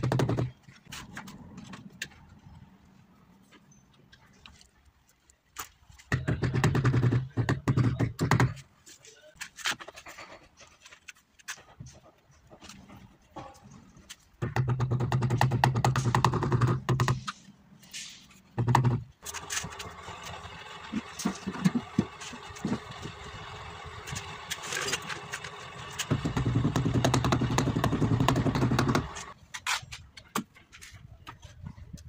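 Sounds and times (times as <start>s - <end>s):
engine running: 19.2s - 29.4s.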